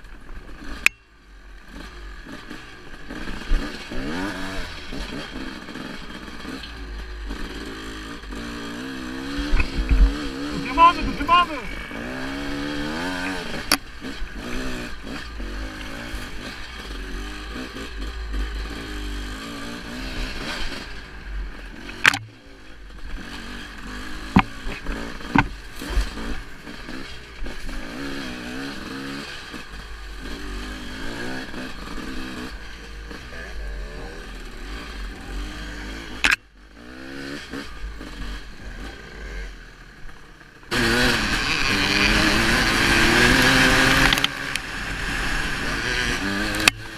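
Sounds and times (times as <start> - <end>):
dirt bike engine revving: 0.0 - 46.9
sharp knocks over bumps: 24.2 - 26.4.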